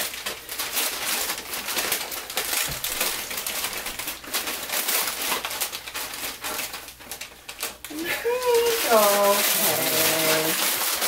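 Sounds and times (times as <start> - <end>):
wrapping paper rustling and crinkling: 0.0 - 11.0.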